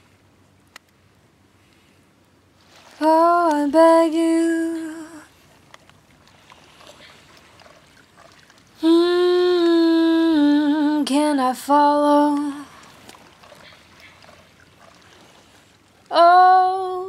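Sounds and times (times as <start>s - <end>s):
woman singing long note: 8.8s - 12.7s, 16.1s - 17.0s.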